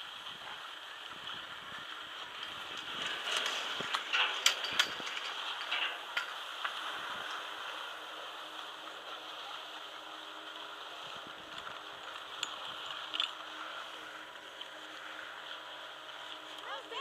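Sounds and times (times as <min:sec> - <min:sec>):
sharp clicks and knocks: 0:02.7 - 0:06.8.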